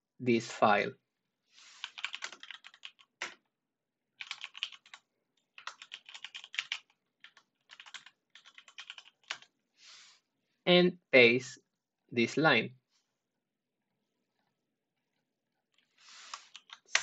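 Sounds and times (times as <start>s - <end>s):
typing on keyboard: 1.8s - 3.4s, 4.2s - 9.5s, 16.3s - 17.0s.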